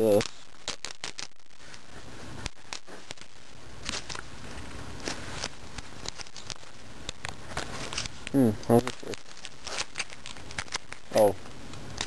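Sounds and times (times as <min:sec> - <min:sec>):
plastic packaging crinkling: 0:00.0 - 0:12.0.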